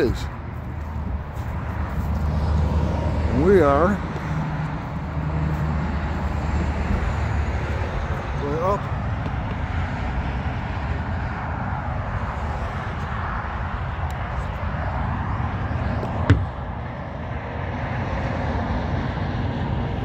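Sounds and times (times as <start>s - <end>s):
highway traffic noise: 0.0s - 20.0s
sharp knock: 16.2s - 16.5s.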